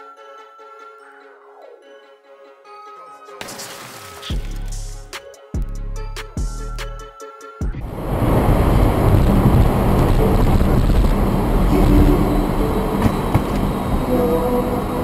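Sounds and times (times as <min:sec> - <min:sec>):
music: 0:00.0 - 0:08.0, 0:09.0 - 0:15.0
car road and engine noise: 0:07.8 - 0:15.0.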